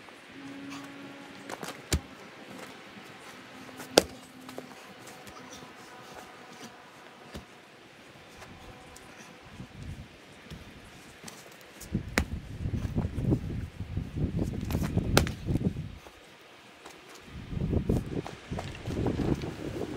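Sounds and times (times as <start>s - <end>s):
maul splitting firewood: 3.9s - 4.3s.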